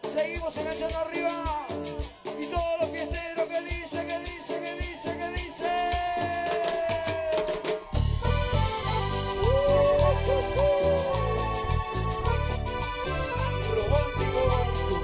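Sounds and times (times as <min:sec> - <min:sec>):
metal scraper rhythm: 0:00.0 - 0:15.0
bass and guitars: 0:08.0 - 0:15.0
gliding lead melody: 0:08.0 - 0:15.0.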